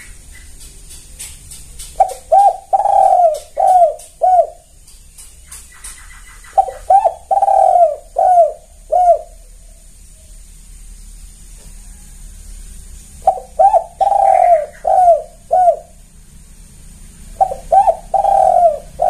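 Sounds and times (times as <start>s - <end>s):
dove cooing: 1.8s - 4.8s, 5.4s - 10.4s, 11.8s - 16.2s, 17.2s - 19.0s.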